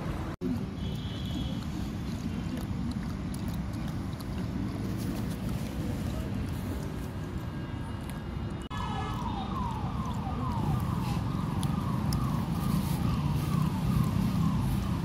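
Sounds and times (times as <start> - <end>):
electronic siren wailing: 8.7 - 15.0.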